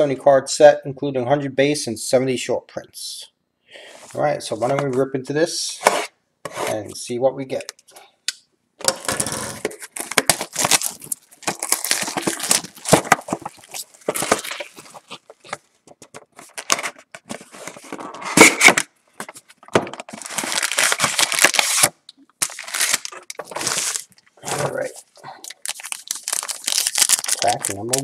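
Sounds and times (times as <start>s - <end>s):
plastic shrink-wrap tearing and crinkling: 9.0s - 15.5s, 20.0s - 28.0s.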